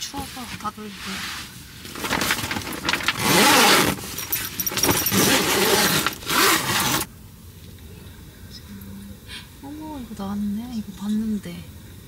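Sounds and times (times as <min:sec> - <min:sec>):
tent fabric rustling: 0:00.0 - 0:07.1
tent zipper rasping: 0:02.0 - 0:07.1.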